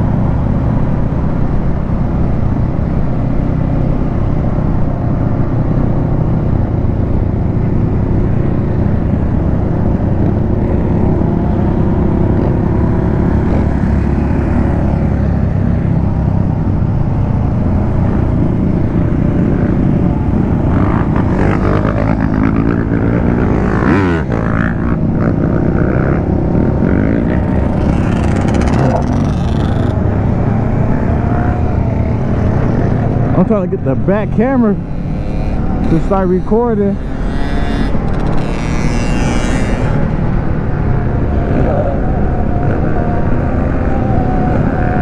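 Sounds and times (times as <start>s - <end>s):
motorcycle engine running: 4.8s - 40.8s
engine revving: 17.5s - 45.0s.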